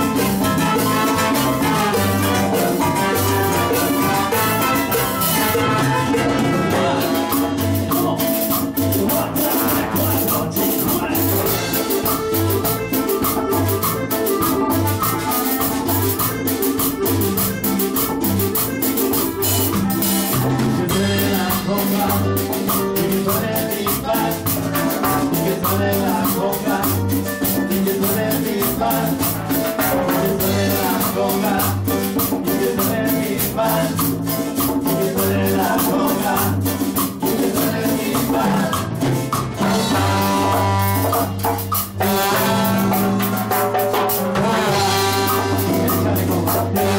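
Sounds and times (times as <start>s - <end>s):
brass: 0.0s - 8.0s, 24.1s - 26.9s, 28.8s - 31.8s, 37.6s - 46.9s
live band playing: 0.0s - 46.9s.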